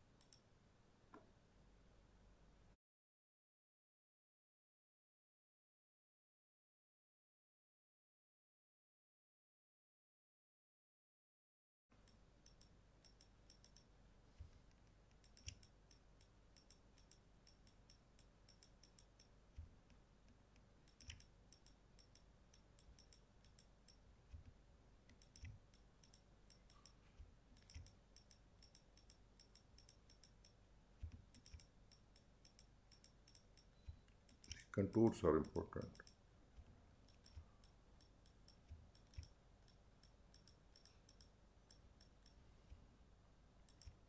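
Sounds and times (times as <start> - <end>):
low room tone hum: 0.0 - 2.8, 11.9 - 44.0
computer mouse clicks: 0.2 - 0.4, 12.0 - 42.8, 43.6 - 44.0.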